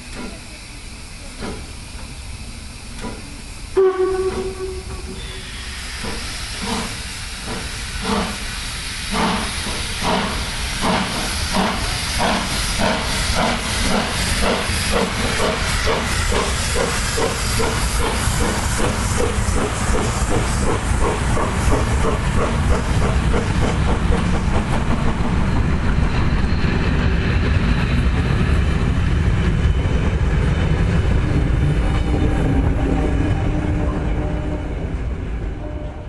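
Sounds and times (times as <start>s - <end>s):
steam hissing: 0.0s - 35.1s
steam locomotive exhaust beats: 0.0s - 36.0s
steam locomotive whistle: 3.7s - 7.0s.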